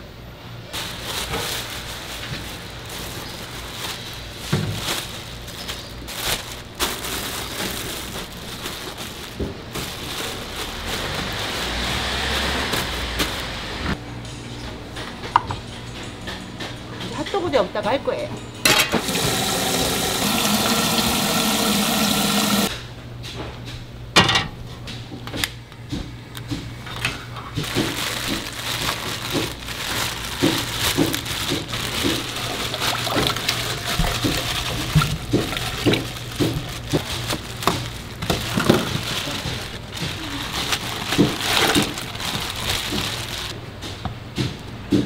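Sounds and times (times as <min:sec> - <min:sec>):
utensils and dishes clinking: 0:14.6 - 0:20.1, 0:26.9 - 0:43.6
water running from a tap: 0:19.0 - 0:22.7.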